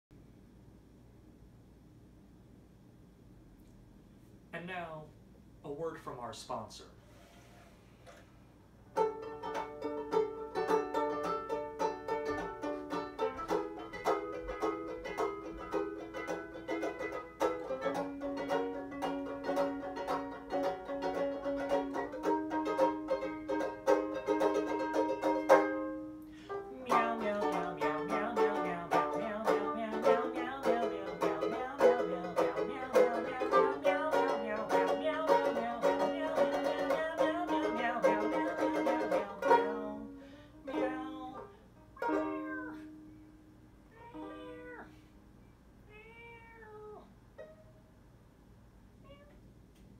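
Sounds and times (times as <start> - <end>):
banjo ukulele strumming: 8.9 - 43.1.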